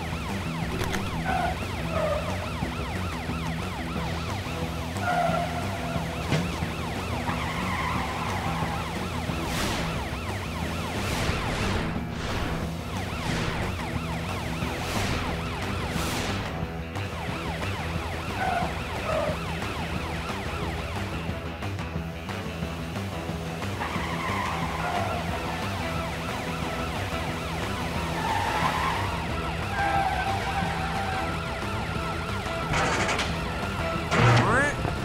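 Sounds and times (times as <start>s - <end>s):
police siren yelping: 0.0s - 21.4s, 23.8s - 32.7s
background music: 0.0s - 35.0s.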